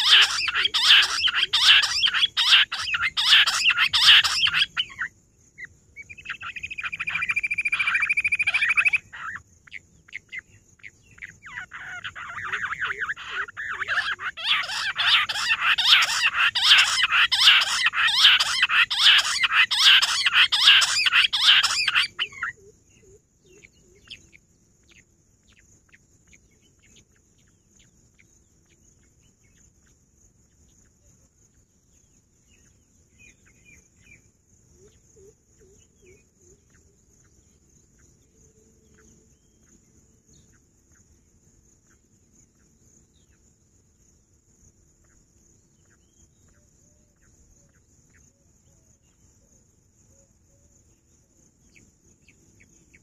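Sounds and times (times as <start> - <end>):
quails calling in chorus: 0.0 - 27.5
faint bird chirps: 0.0 - 44.1, 44.7 - 53.0.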